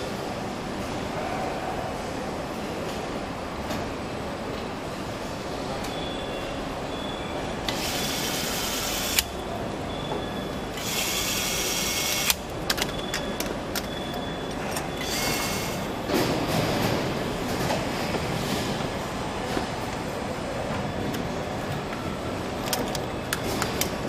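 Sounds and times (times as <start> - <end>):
assembly hall hum: 0.0 - 24.0
nutrunner whirring: 7.7 - 9.4, 10.8 - 12.5.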